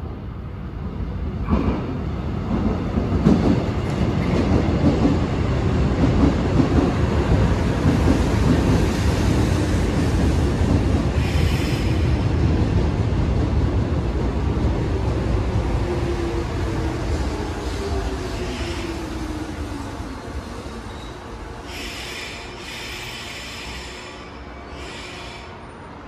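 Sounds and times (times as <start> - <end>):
train rumbling on track: 0.0 - 26.0
high hiss or squeal: 20.9 - 25.6.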